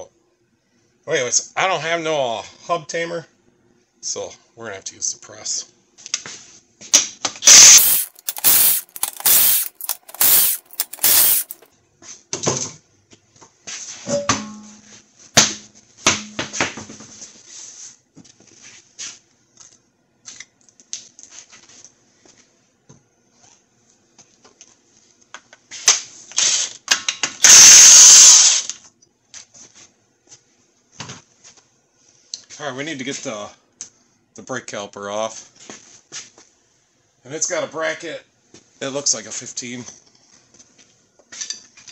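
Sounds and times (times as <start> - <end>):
impact wrench rattling: 7.4 - 11.6
tools clicking and knocking: 7.4 - 11.6.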